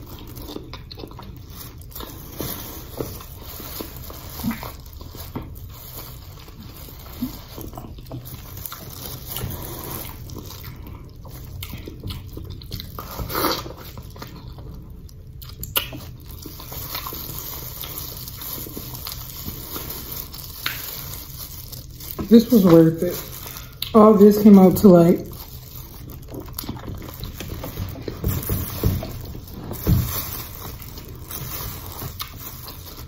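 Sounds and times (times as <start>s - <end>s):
wet chewing and lip-smacking: 0.0s - 5.6s, 7.2s - 19.8s.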